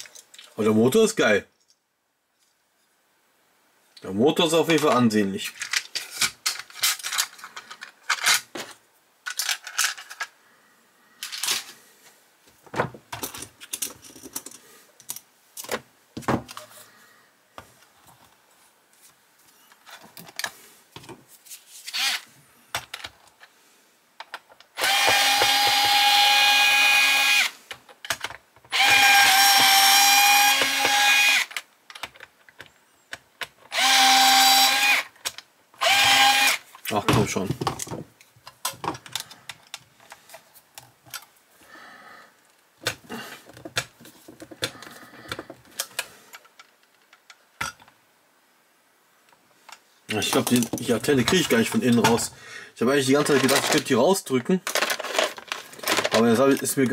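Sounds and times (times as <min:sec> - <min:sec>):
electric screwdriver whine: 0:21.9 - 0:22.2, 0:24.8 - 0:27.5, 0:28.7 - 0:31.5, 0:33.7 - 0:35.0, 0:35.8 - 0:36.6.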